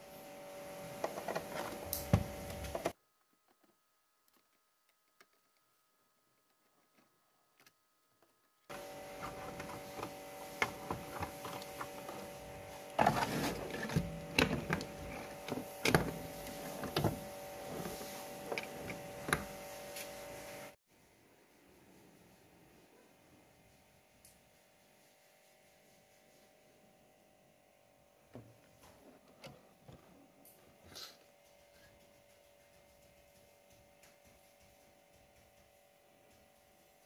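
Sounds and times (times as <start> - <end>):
steady hum: 8.7 - 20.8.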